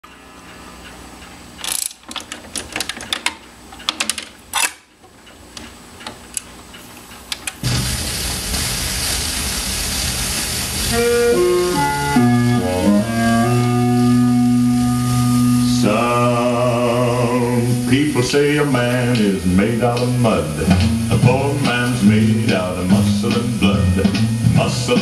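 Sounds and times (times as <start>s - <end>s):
record surface hiss: 0.0s - 25.0s
record changer clicks and clunks: 0.8s - 7.9s
music from record: 7.7s - 25.0s.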